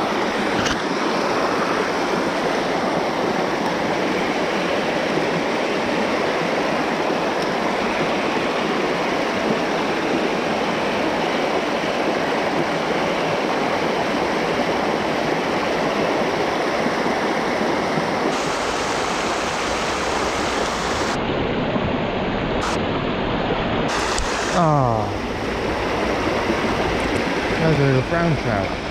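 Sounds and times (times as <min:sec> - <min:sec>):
river water rushing: 0:00.0 - 0:28.9.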